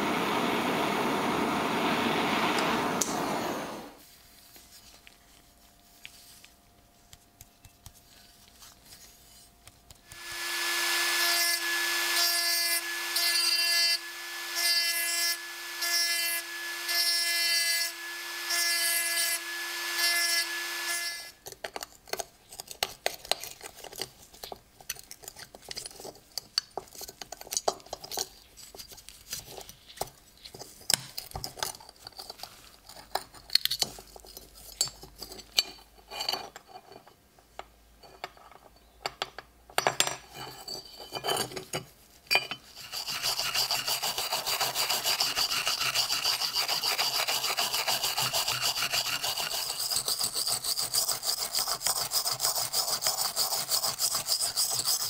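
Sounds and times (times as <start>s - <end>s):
rotary tool motor whine: 0.0s - 4.0s, 10.2s - 21.3s
metal parts scraping and clicking: 21.4s - 37.2s
stone grinding metal: 40.3s - 55.0s.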